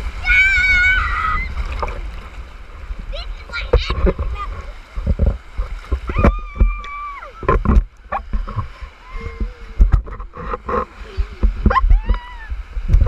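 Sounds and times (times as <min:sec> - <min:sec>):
low rumble of moving water: 0:00.0 - 0:13.0
surf splashing around raft: 0:00.0 - 0:13.0
child laughing and squealing: 0:00.2 - 0:01.6, 0:09.0 - 0:09.8, 0:10.9 - 0:12.6.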